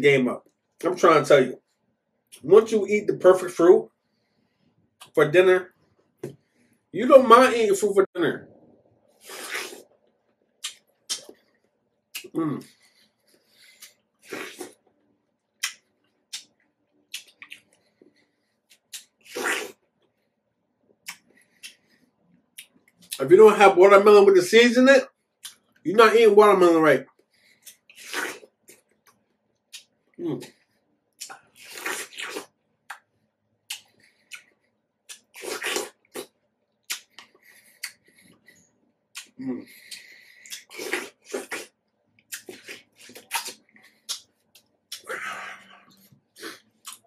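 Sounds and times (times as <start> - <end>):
eating watermelon with slurps: 9.2 - 9.9, 18.8 - 19.8, 27.6 - 28.8, 35.1 - 36.3, 40.4 - 41.7
juicy slurps: 9.2 - 9.9, 13.4 - 14.8, 18.7 - 19.8, 27.6 - 28.8, 31.2 - 33.0, 35.1 - 36.3, 39.2 - 44.3
wet chewing smacks: 10.6 - 11.5, 15.6 - 18.1, 33.7 - 38.4, 39.1 - 47.0.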